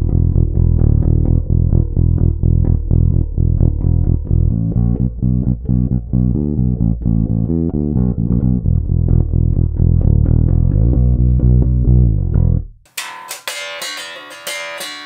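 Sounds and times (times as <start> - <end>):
bass guitar plucked fingerstyle: 0.0 - 12.9.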